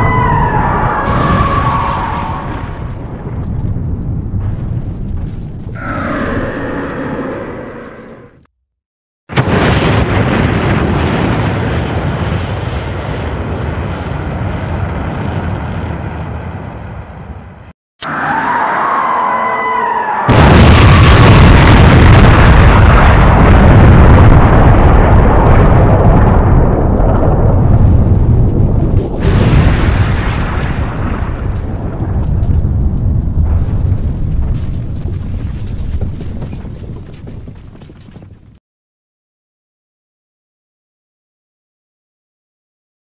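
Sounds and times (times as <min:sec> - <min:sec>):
rumbling explosion tail: 0:00.0 - 0:06.8, 0:09.3 - 0:17.6, 0:20.3 - 0:38.2.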